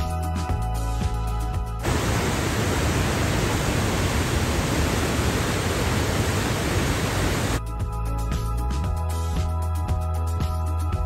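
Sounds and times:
waterfall rushing: 1.8s - 7.6s
background music: 7.6s - 11.0s.

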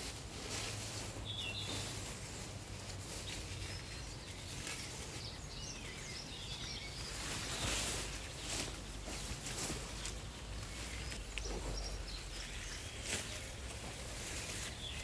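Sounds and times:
small birds chirping: 0.4s - 15.0s
net rustling: 7.1s - 15.0s.

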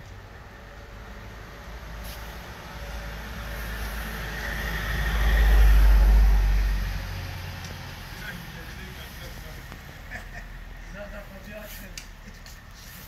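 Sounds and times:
vehicle driving past: 0.5s - 10.9s.

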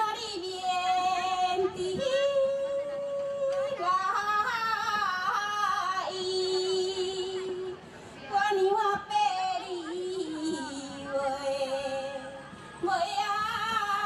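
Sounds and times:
woman singing through microphone: 0.0s - 14.0s.

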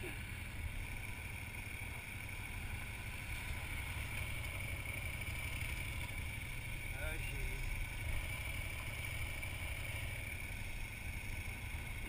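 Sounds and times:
motorcycle engine idling: 0.0s - 12.0s.

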